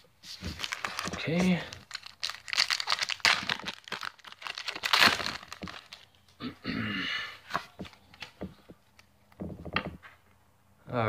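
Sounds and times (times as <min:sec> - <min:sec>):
cards rustling: 0:00.3 - 0:06.1
foil wrapper crinkling and tearing: 0:00.5 - 0:06.1.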